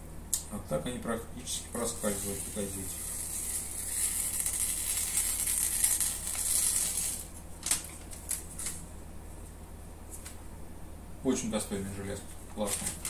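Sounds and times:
knife slicing through paper: 1.9s - 7.3s.

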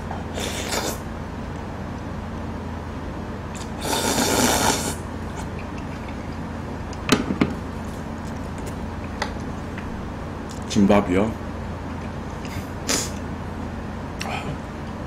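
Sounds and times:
noodles slurped loudly: 3.6s - 6.1s.

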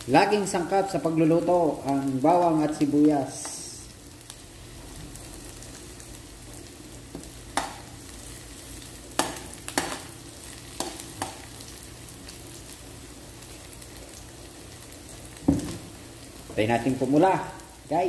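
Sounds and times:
garlic sizzling in oil: 0.0s - 18.0s.

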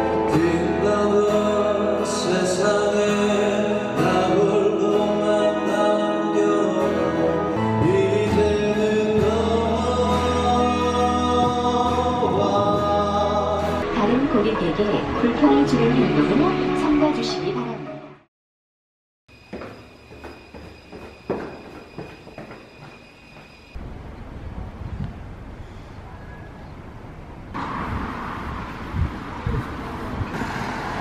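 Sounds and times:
man singing: 0.0s - 13.8s.

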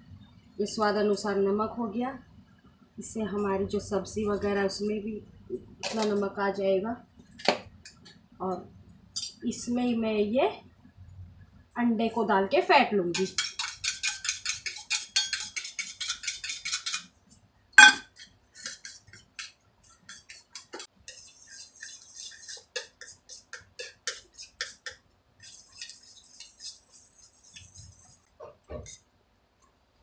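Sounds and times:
utensil clinking on ceramic plate: 13.2s - 17.1s, 17.8s - 19.5s.

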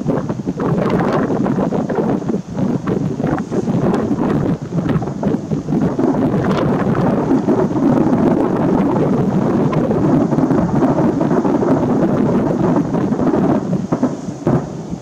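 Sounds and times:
fireworks bursting: 0.0s - 15.0s.

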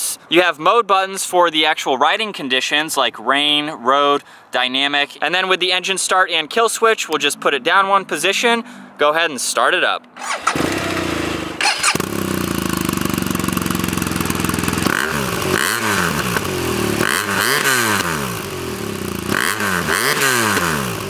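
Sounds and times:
engine throttle blips: 6.9s - 21.0s
motorcycle engine starting and idling: 10.0s - 21.0s.

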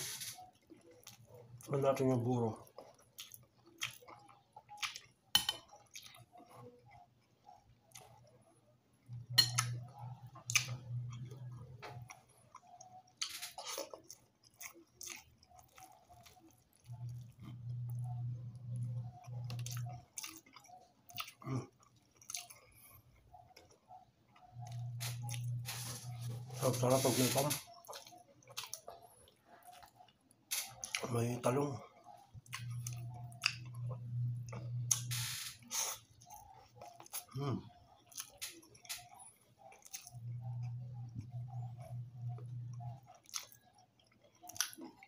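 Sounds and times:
person chewing food: 0.0s - 45.0s
low hum: 24.3s - 27.7s, 32.1s - 35.6s, 40.0s - 43.0s.

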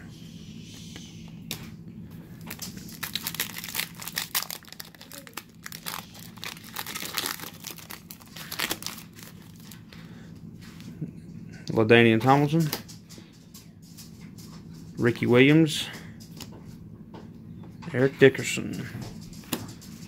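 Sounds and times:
foil pack crinkling and tearing: 2.4s - 9.8s.

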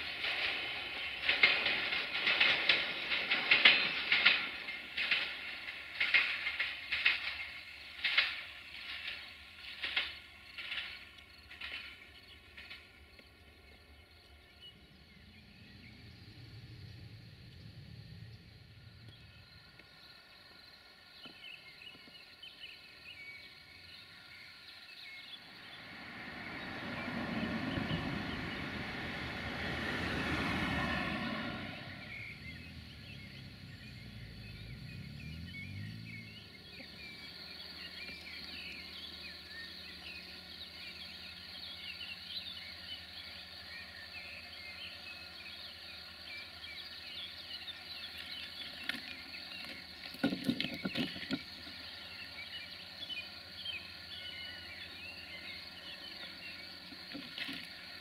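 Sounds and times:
birds chirping: 0.0s - 58.0s
distant diesel locomotive hum: 0.0s - 58.0s
vehicle passing: 14.6s - 19.7s, 25.0s - 48.8s.

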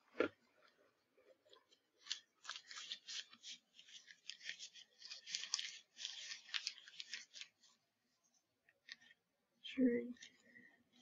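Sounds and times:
plastic wrapper crinkling: 1.4s - 7.8s.

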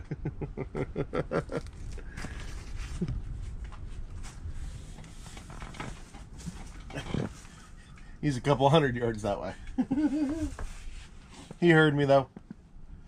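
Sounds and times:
rustling: 1.6s - 8.0s, 9.7s - 11.7s.

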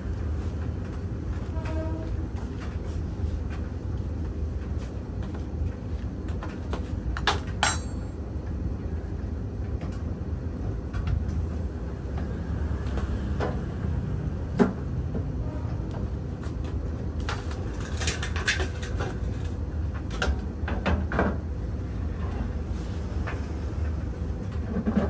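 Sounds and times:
metallic knocks and clanks: 7.2s - 8.2s.

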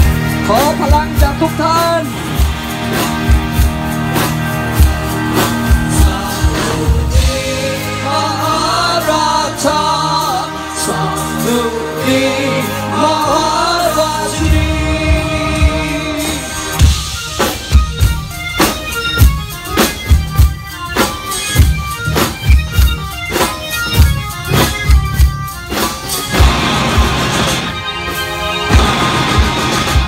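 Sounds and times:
heavy steady drum beats: 0.0s - 30.0s
sustained accompaniment: 0.0s - 30.0s.

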